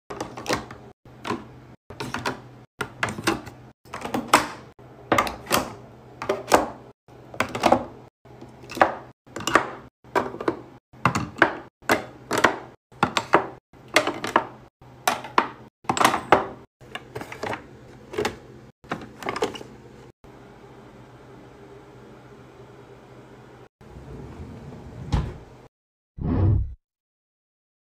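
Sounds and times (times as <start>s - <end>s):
jars clicking into plastic bins: 0.1s - 19.7s.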